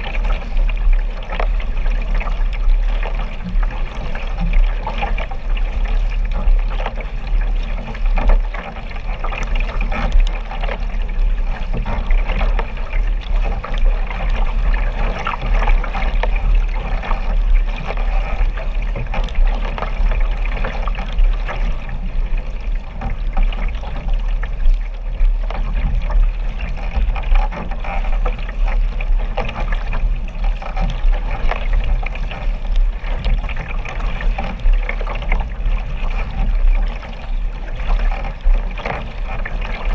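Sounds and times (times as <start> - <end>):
low rumble of water and wind: 0.0 - 39.9
paddle strokes splashing: 0.0 - 39.9
water sloshing and splashing: 0.0 - 39.9.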